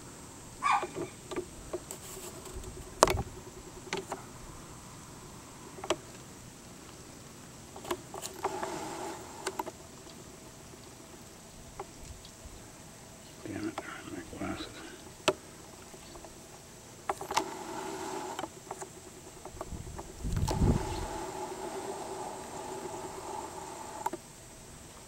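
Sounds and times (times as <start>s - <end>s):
faint high hum: 0.0s - 25.0s.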